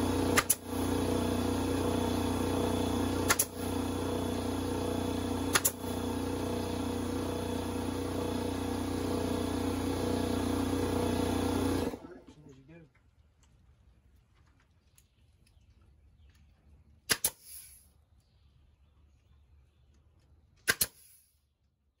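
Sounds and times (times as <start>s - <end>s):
motor humming: 0.0s - 12.4s
staple gun shots: 0.3s - 0.6s, 3.2s - 3.6s, 5.5s - 5.8s, 17.1s - 17.5s, 20.6s - 21.2s.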